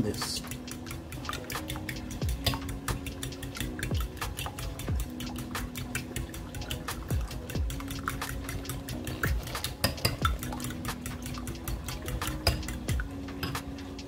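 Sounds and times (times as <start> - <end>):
faint background music: 0.0 - 14.0
fork whisking eggs in a bowl: 0.0 - 14.0.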